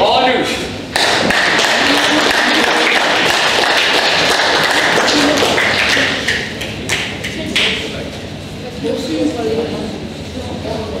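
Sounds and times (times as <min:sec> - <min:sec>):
crowd applauding: 0:00.9 - 0:07.9.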